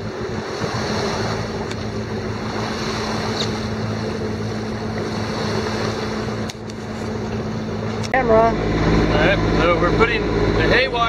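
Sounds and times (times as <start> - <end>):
boat engine drone: 0.0 - 11.0
water rushing along hull: 0.0 - 11.0
wind on microphone: 0.0 - 11.0.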